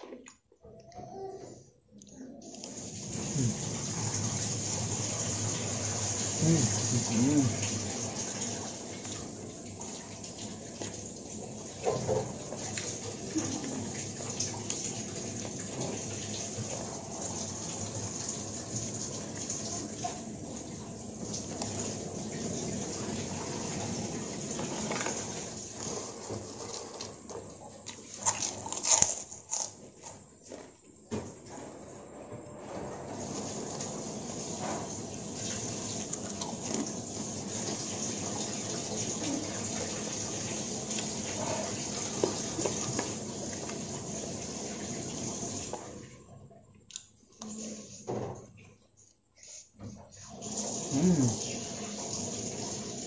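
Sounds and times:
chewing and mouth noises: 0:06.3 - 0:07.8, 0:26.5 - 0:30.8.

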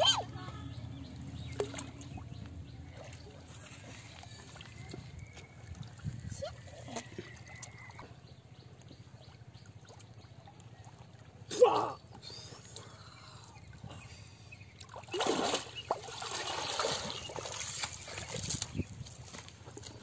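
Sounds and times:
water sloshing: 0:00.0 - 0:20.0
water splashing: 0:01.2 - 0:08.1, 0:14.8 - 0:18.9.

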